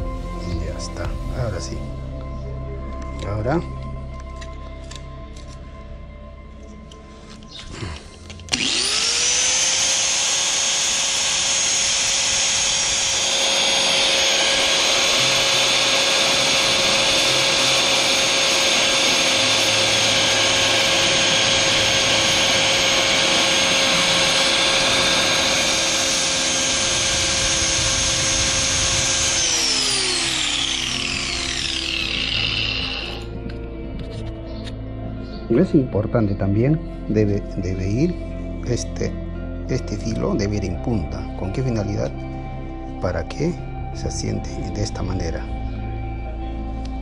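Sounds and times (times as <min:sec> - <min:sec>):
angle grinder whine: 0:06.5 - 0:47.0
grinding plastic hiss: 0:07.7 - 0:33.4.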